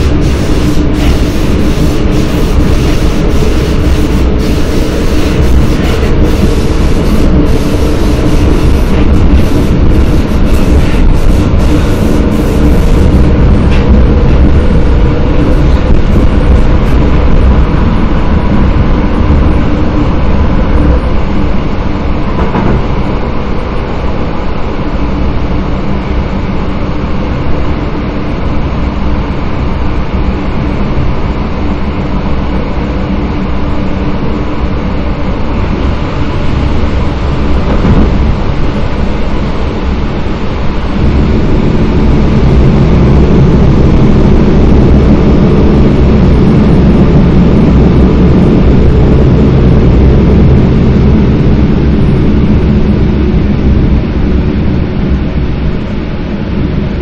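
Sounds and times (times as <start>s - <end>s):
faint motor hum: 0.0s - 57.0s
train wheels rumbling on rails: 0.0s - 57.0s.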